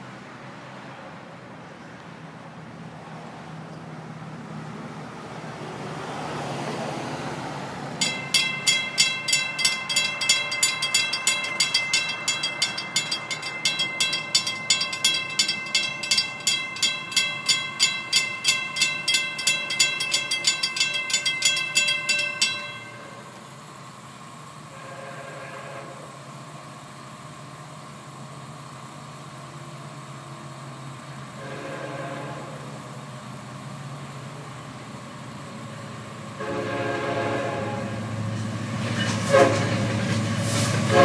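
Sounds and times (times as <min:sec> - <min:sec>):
railroad crossing bell ringing: 0:08.0 - 0:25.0.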